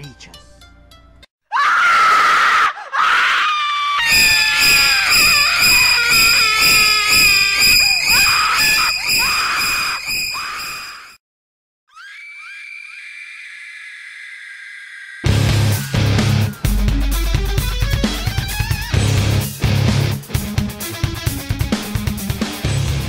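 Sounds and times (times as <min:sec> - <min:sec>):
person screaming: 0:01.5 - 0:10.7
pulsing beat: 0:15.3 - 0:22.3.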